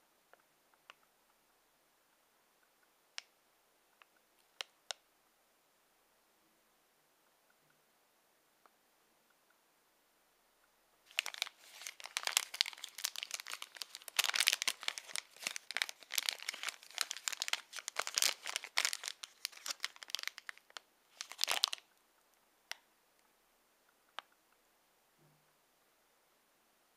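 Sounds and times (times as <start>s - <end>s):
plastic wrapper crinkling: 11.1s - 21.9s.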